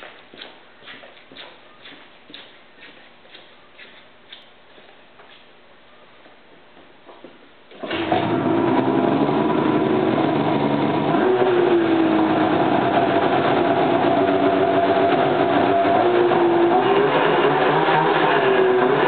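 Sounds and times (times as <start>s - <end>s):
snowmobile engine starting and running: 7.7s - 19.0s.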